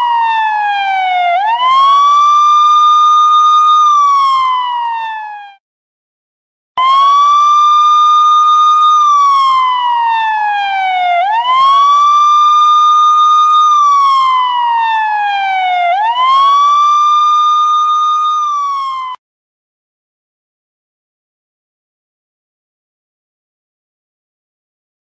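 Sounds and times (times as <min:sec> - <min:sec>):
police siren wailing: 0:00.0 - 0:05.6, 0:06.8 - 0:19.2.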